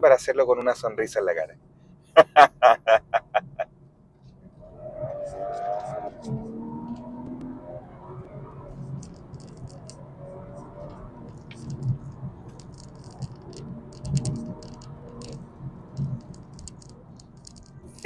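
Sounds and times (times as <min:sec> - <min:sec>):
car cabin hum: 0:02.2 - 0:03.6
small clicks and rattles: 0:08.7 - 0:10.0, 0:10.8 - 0:18.0.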